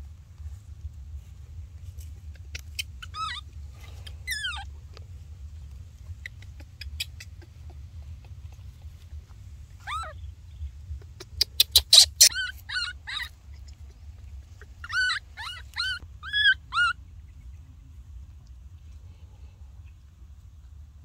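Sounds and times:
low rumble: 0.0s - 11.4s
baby monkey squealing: 2.3s - 4.8s, 6.1s - 9.0s, 9.8s - 10.2s, 10.9s - 17.0s.

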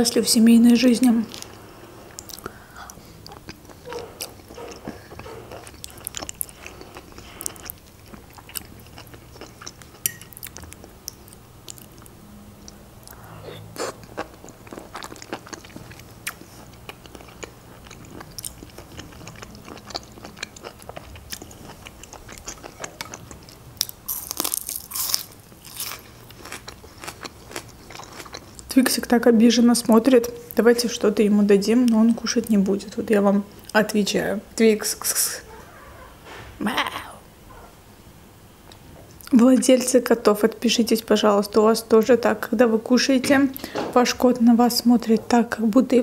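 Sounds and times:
chewing and wet mouth sounds: 1.2s - 29.2s.

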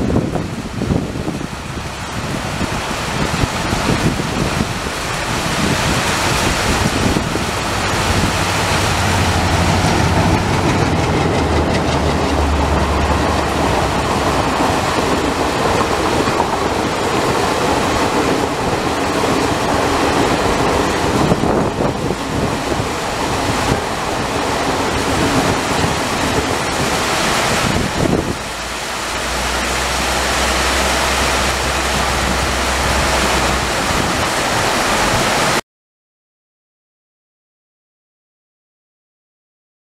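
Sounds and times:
diesel locomotive drone: 0.0s - 35.6s
train coaches rushing past: 6.1s - 35.6s
low hum: 28.3s - 34.6s.

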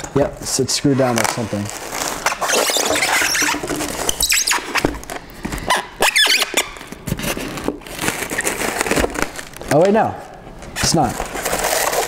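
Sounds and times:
styrofoam squeaking: 0.8s - 9.6s, 10.8s - 12.0s.

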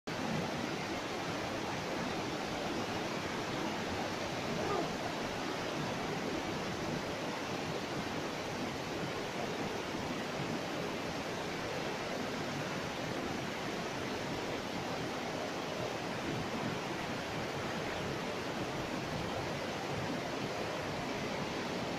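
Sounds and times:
river rapids roaring: 0.1s - 21.9s.

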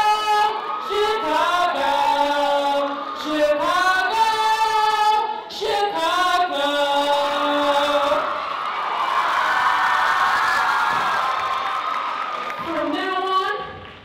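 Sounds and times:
high voice singing: 0.0s - 8.4s.

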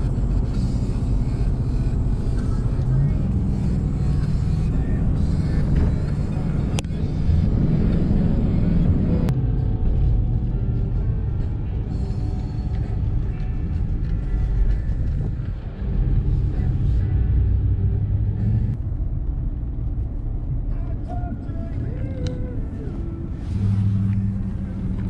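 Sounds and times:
music playing: 0.0s - 18.8s, 20.8s - 25.0s
road and engine rumble: 0.0s - 25.0s.

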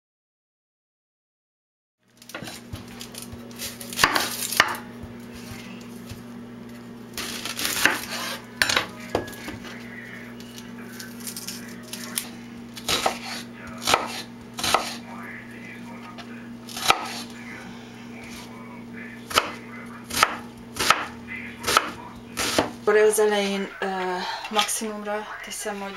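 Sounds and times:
low hum: 2.2s - 25.9s
knife chopping on wooden board: 2.3s - 5.1s, 7.6s - 9.6s, 12.8s - 15.0s, 16.7s - 17.2s, 19.3s - 22.8s.

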